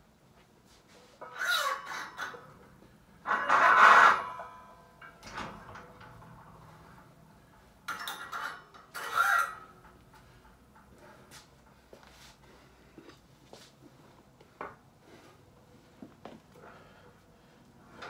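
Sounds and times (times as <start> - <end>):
weight plates scraping on barbell: 1.2 - 11.4.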